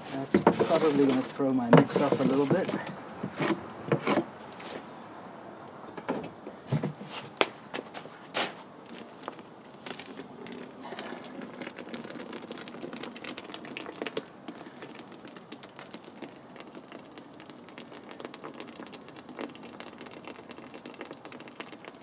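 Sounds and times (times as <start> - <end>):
tool working wet concrete: 0.0 - 4.3.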